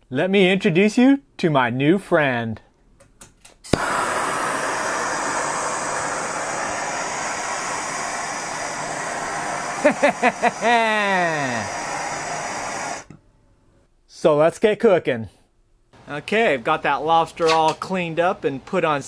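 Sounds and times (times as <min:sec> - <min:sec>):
gas torch igniting click: 0:03.6 - 0:13.2
torch flame hissing: 0:03.7 - 0:13.1.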